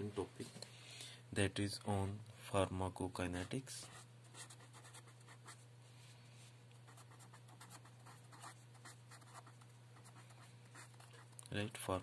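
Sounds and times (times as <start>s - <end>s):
steady low hum: 0.0s - 12.0s
pen scratching on paper: 3.4s - 5.6s, 6.9s - 11.3s.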